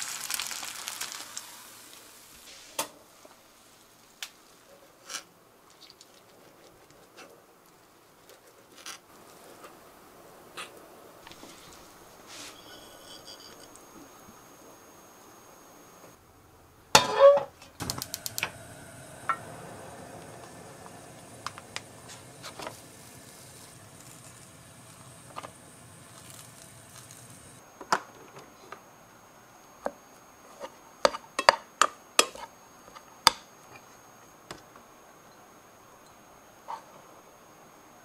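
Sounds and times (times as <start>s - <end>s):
water heating hiss: 0.0s - 5.6s, 9.1s - 16.2s, 17.7s - 27.7s.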